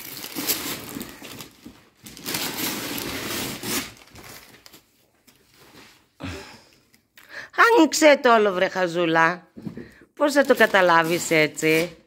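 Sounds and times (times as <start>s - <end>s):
wrapping paper rustling and tearing: 0.0s - 5.0s.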